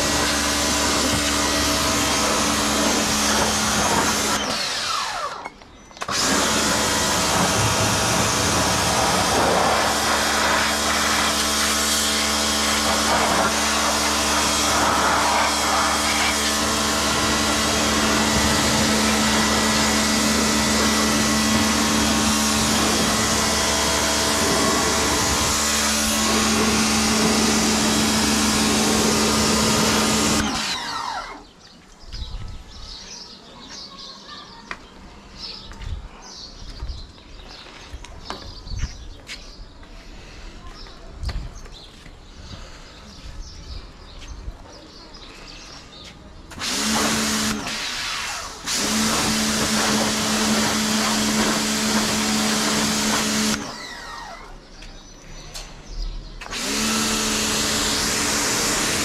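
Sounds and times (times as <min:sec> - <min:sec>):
pressure washer motor humming: 0:00.0 - 0:31.5, 0:46.5 - 0:54.7, 0:56.4 - 0:59.0.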